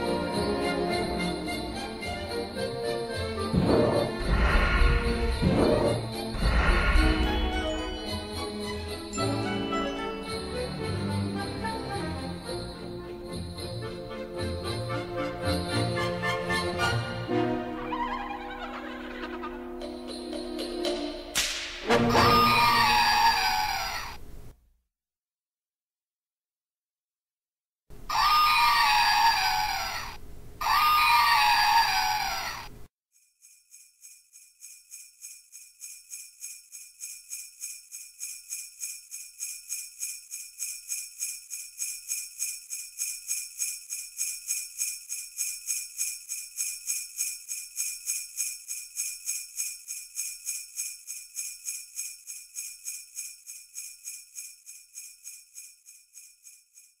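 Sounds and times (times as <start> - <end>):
sleigh bells shaken rhythmically: 0.0 - 17.5, 18.8 - 21.4, 33.2 - 57.0
elephant trumpeting: 28.1 - 32.7.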